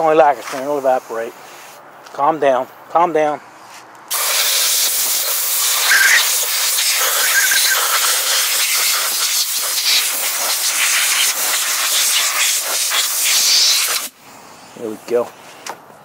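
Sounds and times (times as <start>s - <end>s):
air blow gun hissing: 4.1s - 14.2s.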